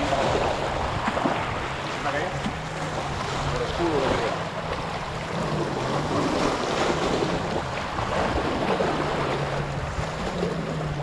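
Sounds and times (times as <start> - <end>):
waves washing over rocks: 0.0 - 11.0.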